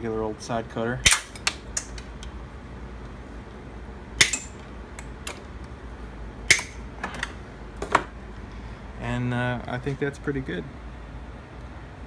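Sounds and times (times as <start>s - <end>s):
side cutters snapping wire: 1.0s - 2.3s, 4.2s - 5.4s, 6.5s - 6.8s.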